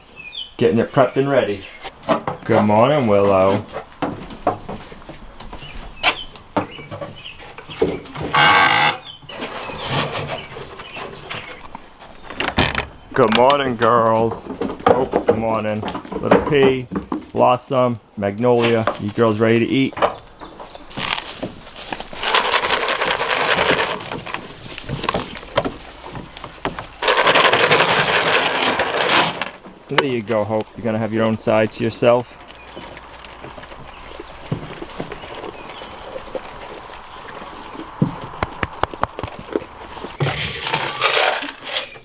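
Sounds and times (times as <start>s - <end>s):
feed pellets rattling into wooden trough: 22.2s - 24.4s, 27.0s - 29.6s, 40.2s - 42.0s.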